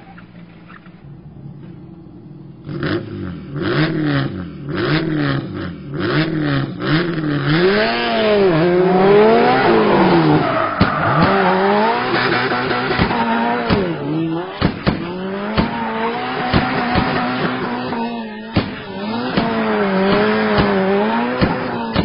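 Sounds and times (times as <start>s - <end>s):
car engine revving: 0.0s - 22.0s
sliding tyres hissing: 8.2s - 14.8s.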